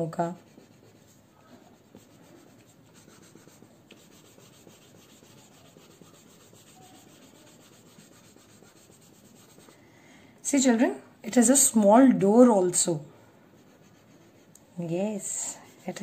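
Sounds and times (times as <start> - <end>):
pencil scratching on paper: 0.0 - 9.8, 13.5 - 16.0.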